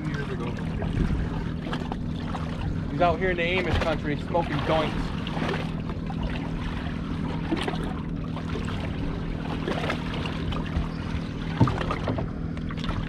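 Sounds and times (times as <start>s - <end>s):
outboard motors idling: 0.0s - 13.0s
water splashing against hull: 0.0s - 13.0s.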